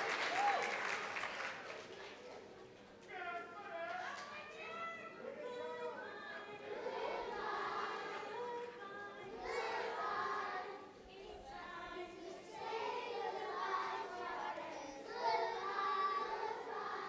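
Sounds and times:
children's choir singing: 5.2 - 17.0.

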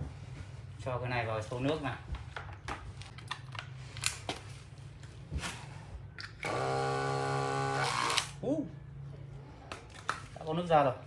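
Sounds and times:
electric water pump humming: 6.4 - 8.4.

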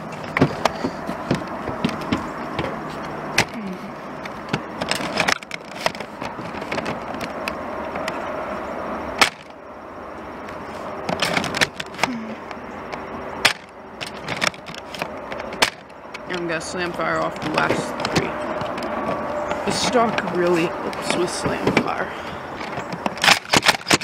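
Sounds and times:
toy blaster clacks and pops: 23.1 - 24.0.

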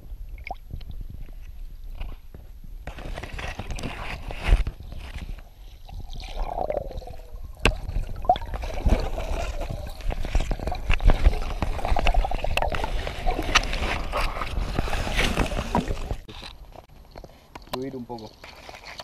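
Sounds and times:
water gurgling underwater: 5.9 - 15.1.

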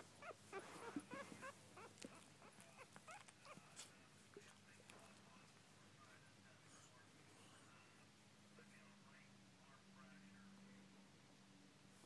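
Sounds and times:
puppy whimpering squeaks: 0.0 - 3.7.

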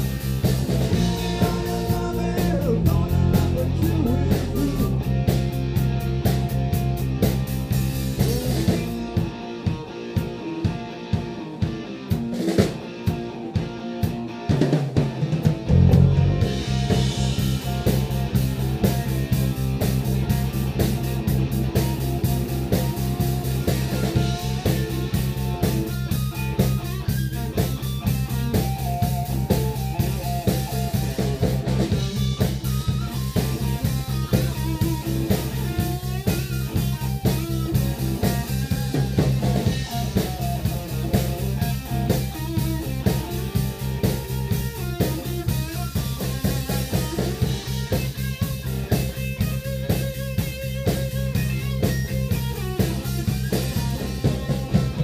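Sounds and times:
blues-rock band playing: 0.0 - 55.0
drum hits: 14.5 - 55.0.

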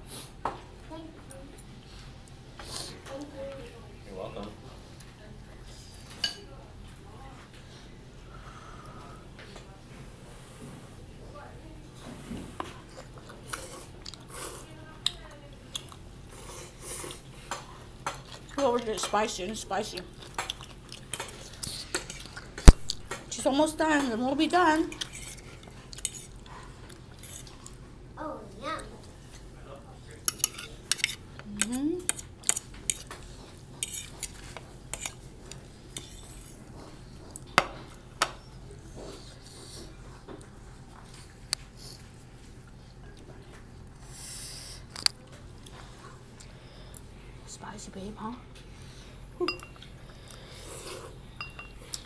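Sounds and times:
chewing and mouth noises: 20.0 - 23.1
forks clinking on ceramic plates: 49.4 - 49.8, 51.4 - 51.9.

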